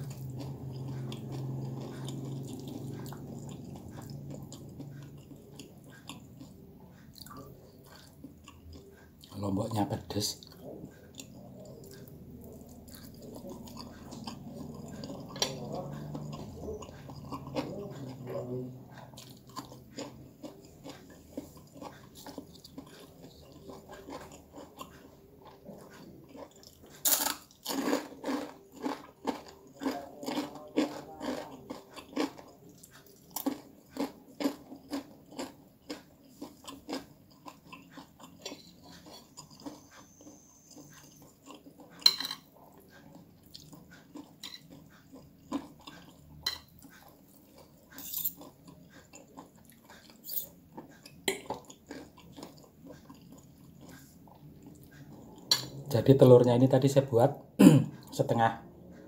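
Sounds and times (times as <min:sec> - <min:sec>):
person chewing crunchy food: 0:00.0 - 0:56.1.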